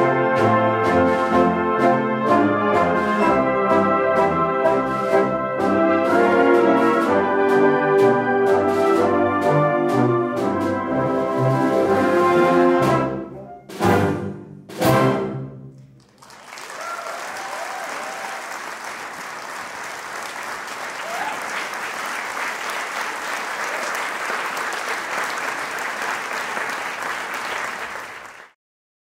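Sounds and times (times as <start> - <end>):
wind band chords: 0.0 - 15.6
audience applause: 16.0 - 28.6.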